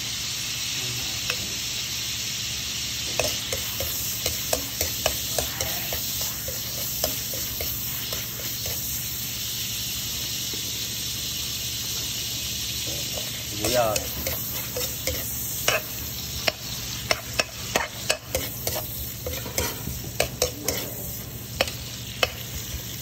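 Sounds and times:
garlic sizzling in hot oil: 0.0 - 23.0
metal spatula scraping wok: 3.2 - 9.0, 13.2 - 22.8.

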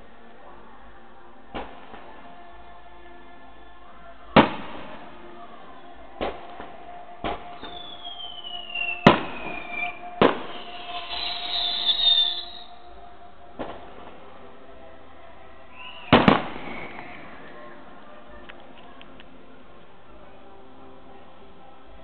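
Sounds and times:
firework bangs: 4.4 - 5.0, 6.2 - 12.6, 13.6 - 14.3, 15.8 - 17.5
descending firework whistle: 7.2 - 14.1, 15.7 - 17.8.

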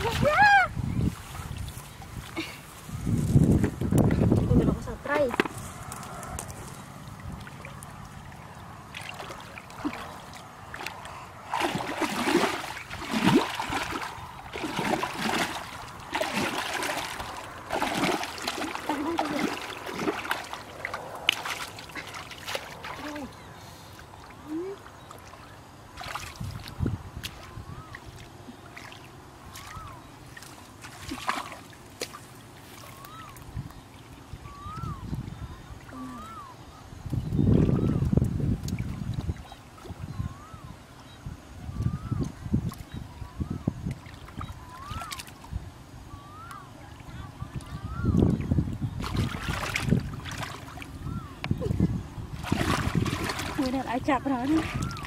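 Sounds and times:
wading through muddy water: 0.0 - 55.0
hands splashing in water: 8.9 - 23.1, 28.7 - 33.1, 49.0 - 50.9, 52.4 - 53.8.

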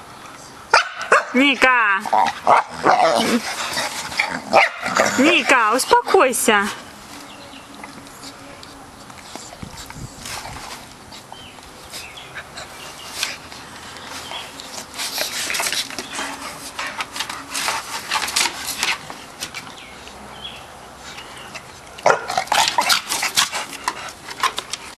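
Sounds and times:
dogs growling and grunting: 2.0 - 5.6.

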